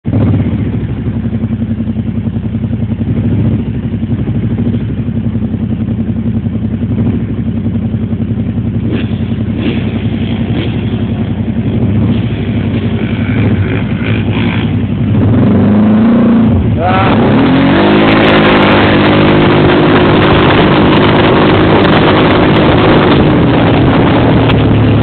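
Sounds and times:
atv engines idling: 0.1 - 15.3.

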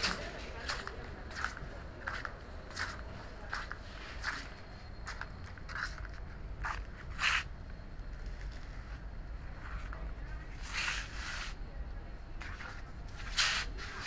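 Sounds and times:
footsteps walking: 0.0 - 7.5.

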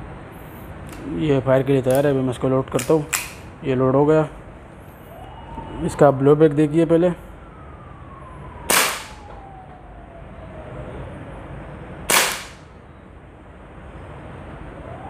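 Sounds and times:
pistol shots: 8.7 - 9.2, 12.1 - 12.7.

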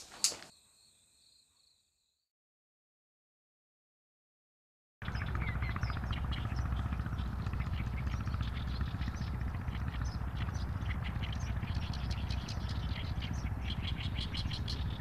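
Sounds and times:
small birds chirping: 5.0 - 15.0
steady low rumble: 5.0 - 15.0.

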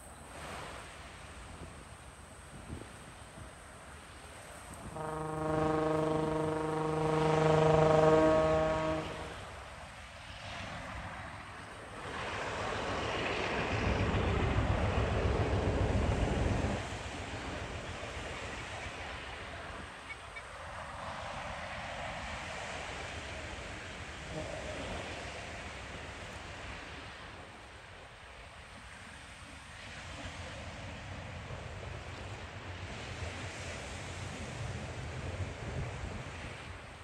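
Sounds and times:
train horn blast: 4.6 - 9.9, 23.2 - 25.5.

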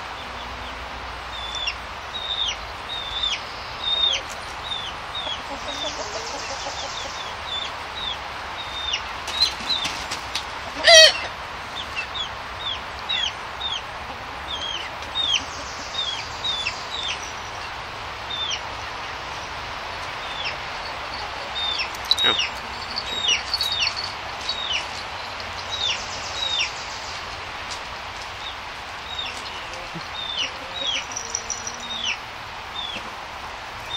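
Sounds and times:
chicks cheeping: 0.2 - 10.2, 10.8 - 27.3, 28.4 - 33.2
chick wavering call: 29.7 - 32.2.

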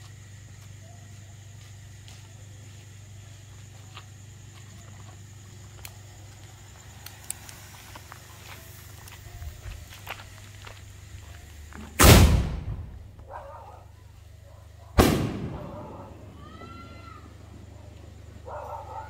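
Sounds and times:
mortar lift charge bang: 12.0 - 13.1
firework shell bursting overhead: 15.0 - 17.6.

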